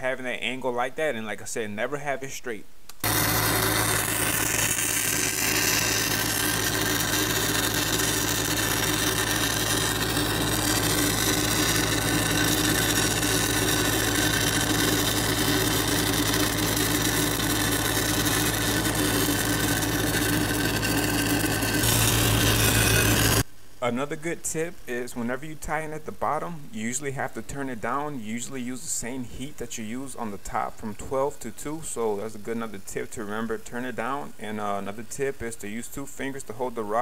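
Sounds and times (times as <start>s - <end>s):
welder engine running: 3.0s - 23.5s
welding arc hissing: 3.0s - 23.5s.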